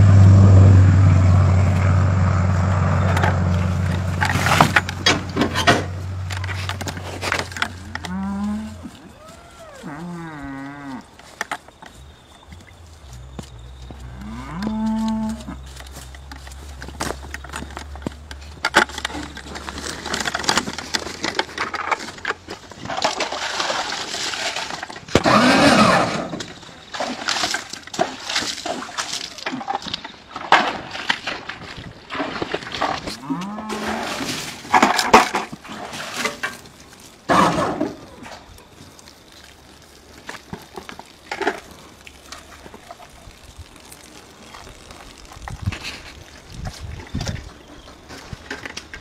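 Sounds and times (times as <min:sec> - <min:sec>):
scraping noises: 0:01.6 - 0:10.2, 0:13.0 - 0:49.0
cattle mooing: 0:07.8 - 0:11.1, 0:14.0 - 0:15.6, 0:33.2 - 0:34.2.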